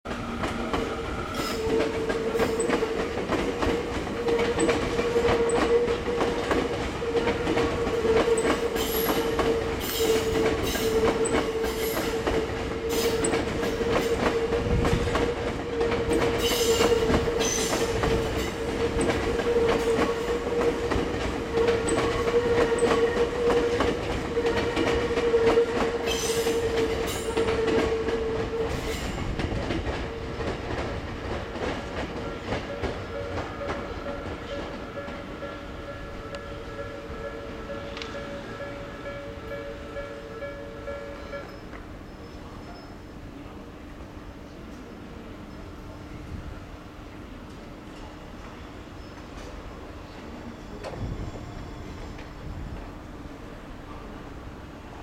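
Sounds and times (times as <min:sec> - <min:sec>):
train wheels clacking over rails: 0:00.1 - 0:40.1.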